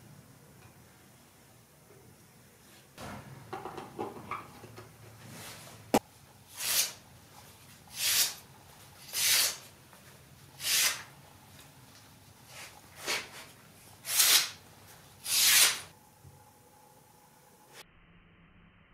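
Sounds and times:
knife slicing through paper: 6.5s - 7.0s, 7.9s - 8.4s, 9.0s - 9.6s, 10.6s - 11.1s, 12.5s - 14.6s, 15.2s - 15.9s.

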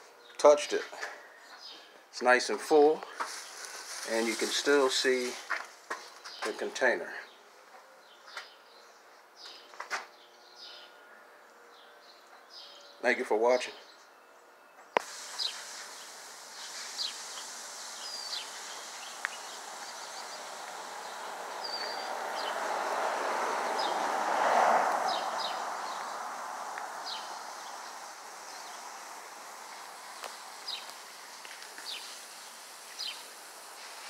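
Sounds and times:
birds chirping: 0.0s - 34.0s
passing vehicle: 17.5s - 31.3s.

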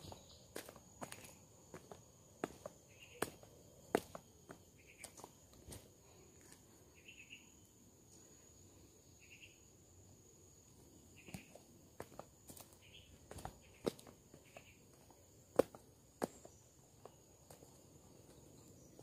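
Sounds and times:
footsteps on concrete steps: 0.0s - 6.6s, 11.2s - 19.0s
high insect whine: 0.0s - 19.0s.

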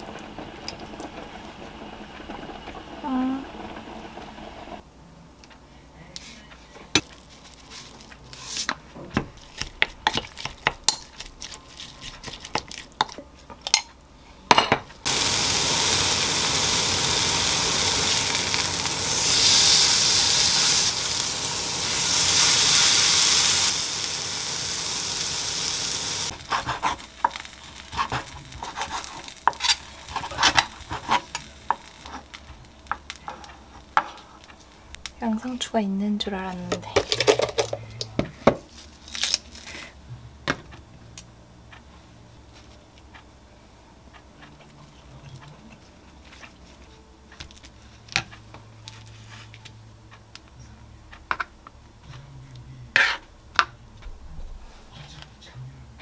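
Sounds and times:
steak sizzling in a grill pan: 15.0s - 34.0s.

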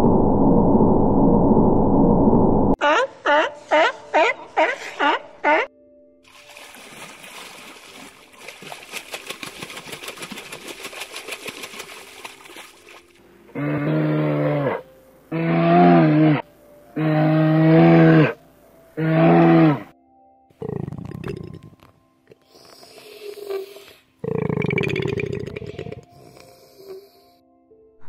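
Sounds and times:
fish splashing at water surface: 6.3s - 13.2s
bear calling: 13.5s - 16.4s, 17.0s - 18.4s, 19.0s - 19.9s.

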